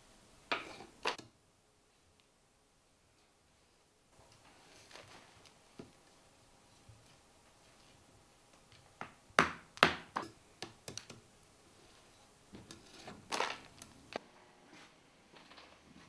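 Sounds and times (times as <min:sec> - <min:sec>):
hammer knocking clay on concrete: 0:09.0 - 0:10.8
gritty scraping rustle: 0:11.8 - 0:14.2.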